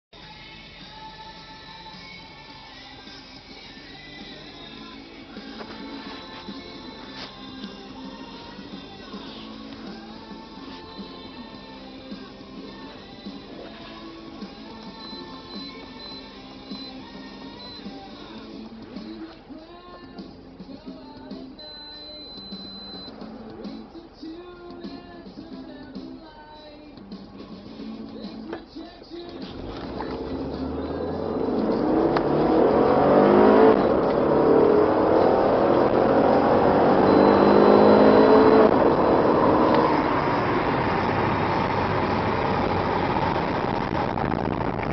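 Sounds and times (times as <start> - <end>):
music with held notes: 0.2 - 39.8
car engine accelerating hard: 23.0 - 24.3, 29.4 - 44.9
steady high tone: 36.8 - 39.4.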